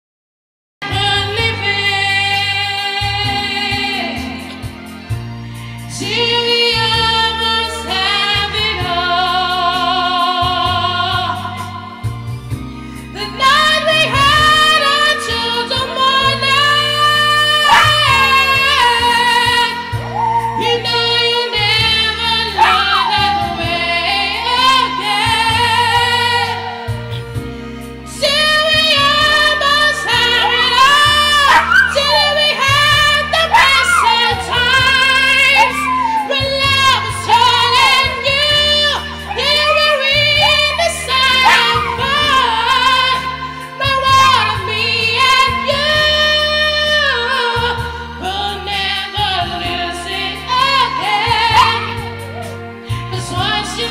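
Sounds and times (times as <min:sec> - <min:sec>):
music with low notes: 0:00.8 - 0:53.9
dog howling: 0:17.6 - 0:19.3, 0:22.6 - 0:24.9, 0:29.0 - 0:43.1, 0:51.2 - 0:52.6.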